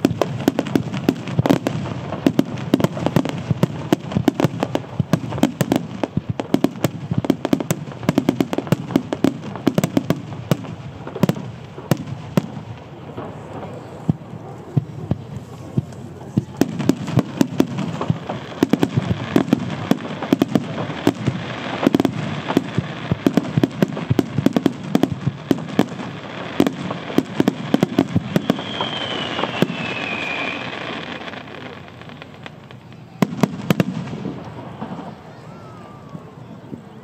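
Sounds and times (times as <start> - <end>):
firework whistle gliding down: 28.0 - 31.8.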